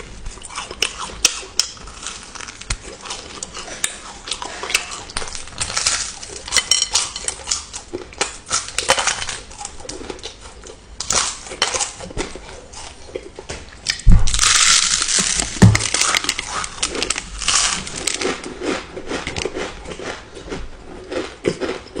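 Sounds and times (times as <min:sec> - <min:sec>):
popcorn being chewed: 0:00.0 - 0:22.0
dull thumps: 0:15.4 - 0:16.0.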